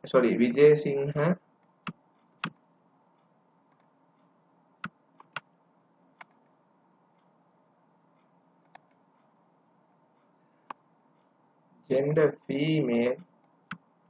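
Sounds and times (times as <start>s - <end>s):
mouse and keyboard clicks: 6.2s - 6.4s, 8.6s - 9.0s.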